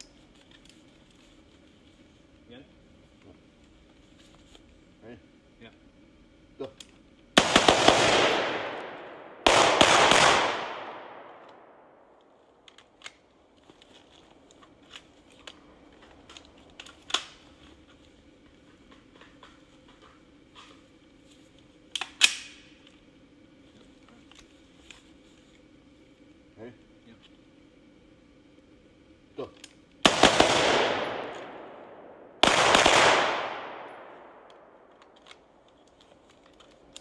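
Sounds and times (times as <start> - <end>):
rifle shots echoing: 7.4 - 12.1, 30.0 - 34.8.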